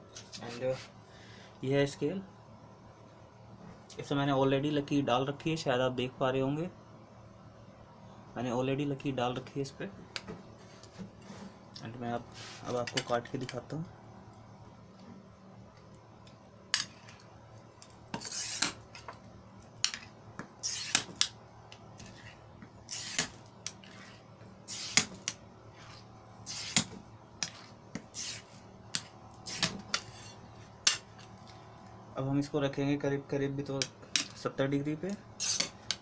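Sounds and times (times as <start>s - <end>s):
glass cutter scoring glass: 18.1s - 18.8s, 20.6s - 21.3s, 22.0s - 31.0s, 35.4s - 36.0s.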